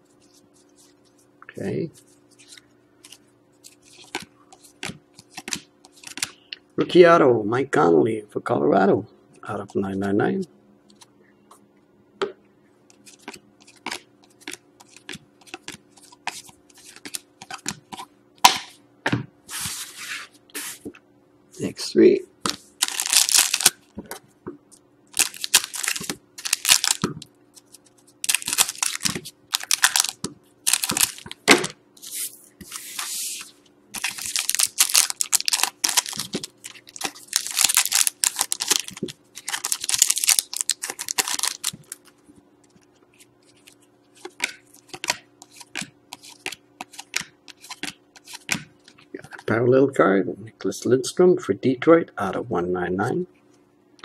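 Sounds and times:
foil wrappers crinkling: 22.5s - 23.8s, 25.1s - 31.4s, 32.8s - 49.0s
scissors cutting foil packs: 34.0s - 42.0s
cards clicking and sliding: 43.6s - 48.6s.

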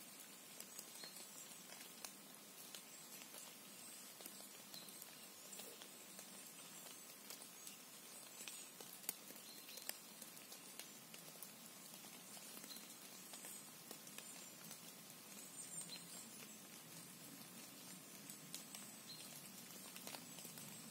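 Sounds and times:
faint steady hiss: 0.0s - 20.9s
small ticks and patters: 0.0s - 20.9s.

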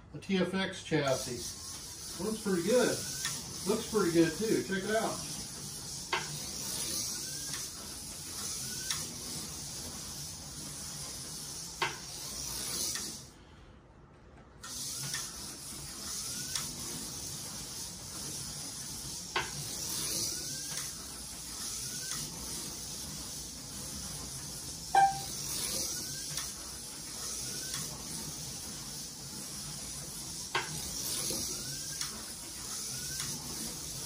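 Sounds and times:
slot car motor whine: 1.1s - 13.2s, 14.7s - 23.6s, 24.5s - 28.1s.

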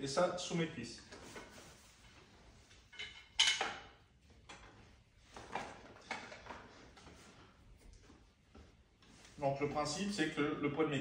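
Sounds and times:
straps and buckles rustling and clacking: 1.1s - 9.5s.

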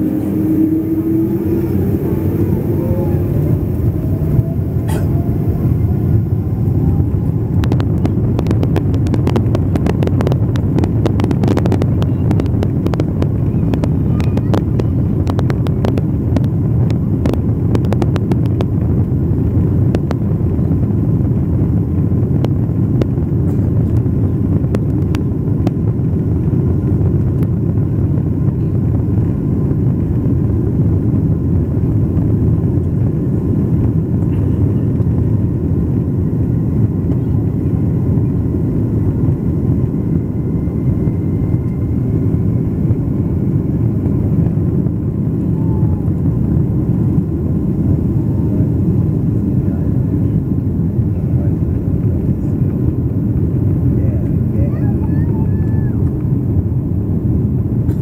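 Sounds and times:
jet engine whine rising: 0.0s - 19.0s, 31.8s - 57.8s
jet engine rumble in cabin: 0.0s - 58.0s.

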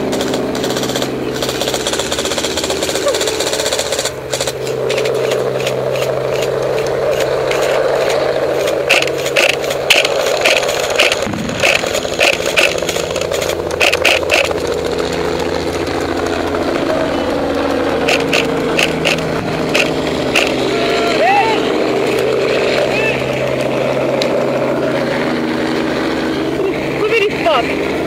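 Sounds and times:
helicopter engine and rotor drone: 0.0s - 28.0s
sharp clicks: 0.1s - 14.6s, 18.0s - 20.6s.

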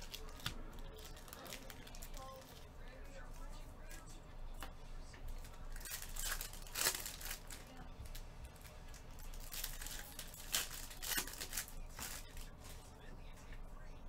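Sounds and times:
foil wrapper crinkling and tearing: 0.0s - 2.7s, 5.3s - 12.8s.

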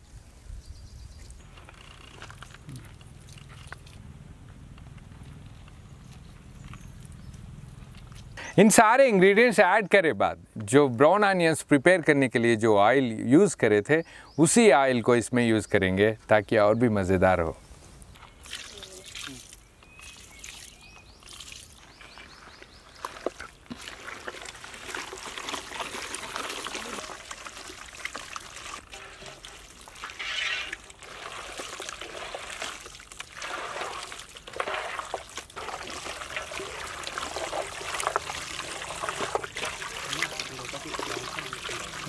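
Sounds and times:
hand squelching meat in marinade: 23.0s - 42.0s.

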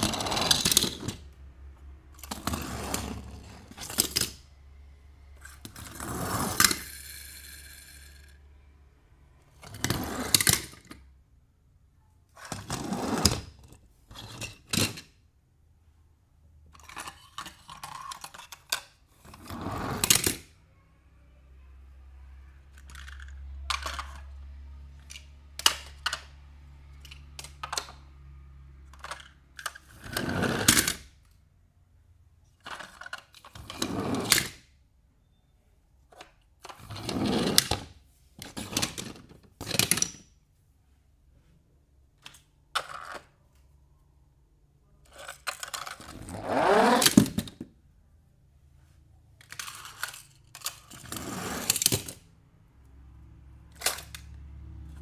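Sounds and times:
toy cars clicking: 0.0s - 1.3s, 2.1s - 4.4s, 5.4s - 8.6s, 16.7s - 19.4s, 22.6s - 31.4s, 32.5s - 34.6s, 45.0s - 47.6s, 49.4s - 52.3s, 53.7s - 55.0s.

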